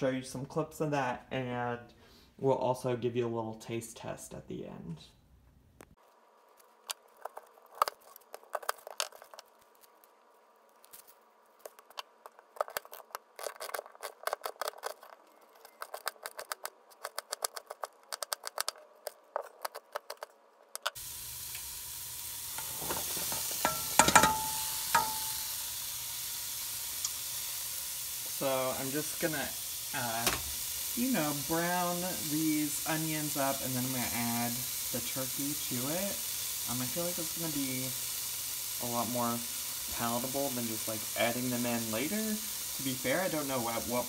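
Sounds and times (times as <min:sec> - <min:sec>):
sizzling hiss from hot pot: 0:21.0 - 0:44.0.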